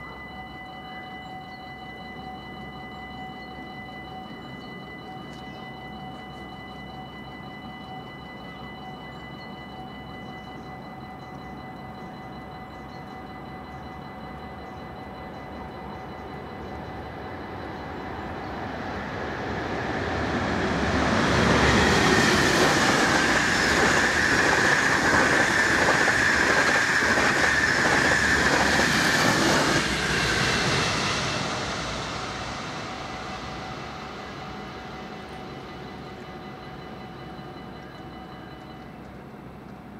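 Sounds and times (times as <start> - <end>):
electric train passing: 0.0 - 39.9
level crossing warning bell: 0.0 - 39.9.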